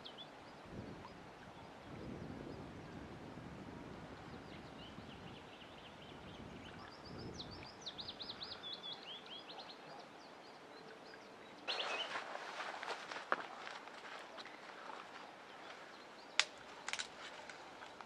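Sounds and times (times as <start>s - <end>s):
songbirds chirping: 0.0s - 18.0s
bird trill: 11.5s - 12.2s
dry twigs snapping: 16.4s - 18.0s.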